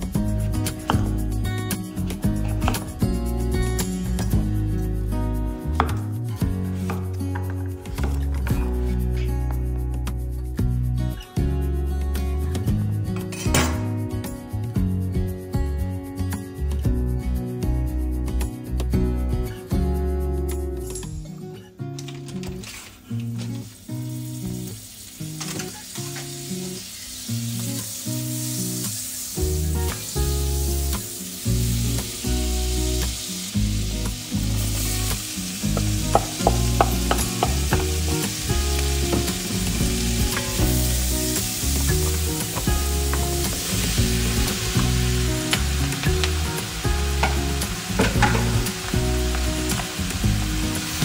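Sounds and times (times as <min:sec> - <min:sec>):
butter and oil sizzling: 0:00.0 - 0:10.9, 0:23.2 - 0:51.0
background music: 0:00.0 - 0:22.7, 0:26.2 - 0:51.0.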